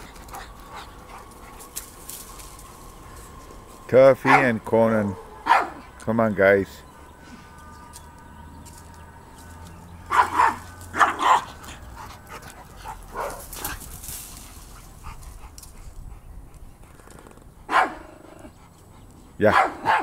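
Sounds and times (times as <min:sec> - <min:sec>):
dog barking: 0:04.2 - 0:04.6, 0:05.4 - 0:06.0, 0:10.1 - 0:13.8, 0:17.7 - 0:18.2, 0:19.4 - 0:20.0
dog yipping: 0:05.4 - 0:05.9, 0:10.1 - 0:11.6, 0:17.7 - 0:18.0, 0:19.6 - 0:20.0.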